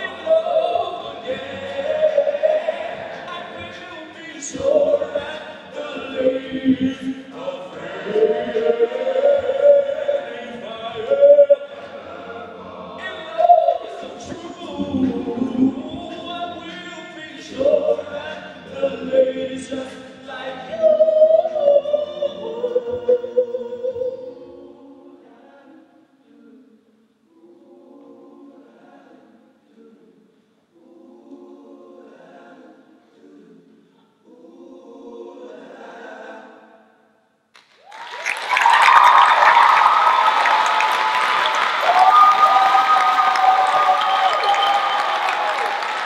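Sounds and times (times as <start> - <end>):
men singing a cappella: 0.0 - 30.2, 30.8 - 36.8
audience applause: 37.6 - 46.0.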